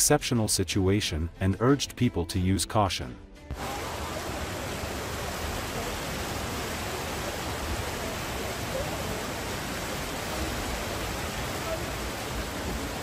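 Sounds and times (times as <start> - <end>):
floodwater rushing down a street: 3.5 - 13.0.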